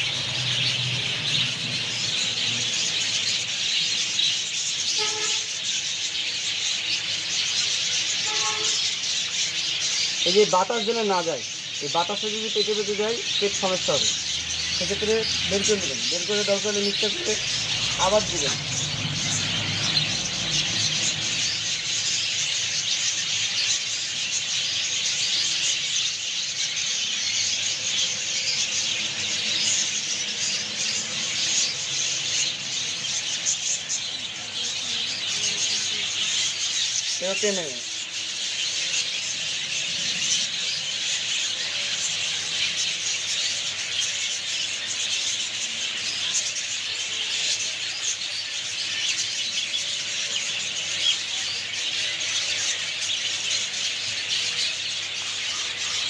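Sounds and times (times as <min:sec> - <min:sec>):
lower bird call: 0:00.0 - 0:10.7
bird chicks squealing and chirping: 0:00.0 - 0:56.0.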